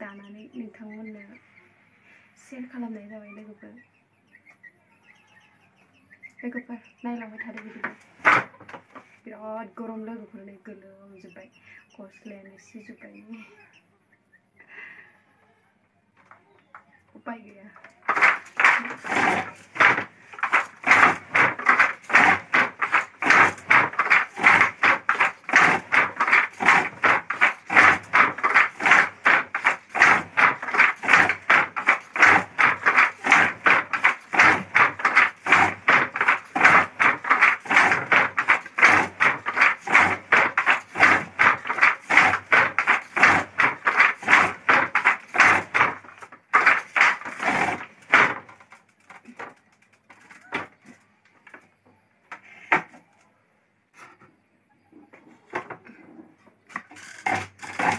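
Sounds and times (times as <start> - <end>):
wooden handloom clattering: 7.2 - 9.1, 17.8 - 51.6, 56.6 - 57.9.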